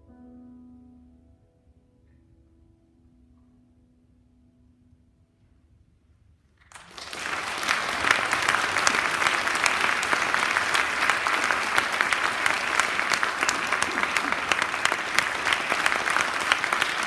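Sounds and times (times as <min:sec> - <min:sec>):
audience applauding: 0:06.7 - 0:17.0.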